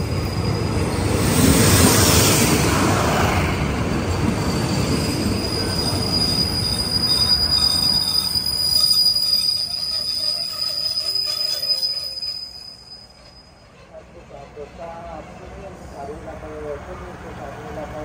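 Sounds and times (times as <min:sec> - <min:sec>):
train rolling rumble: 0:00.0 - 0:18.0
wheel and brake squeal: 0:04.1 - 0:15.0.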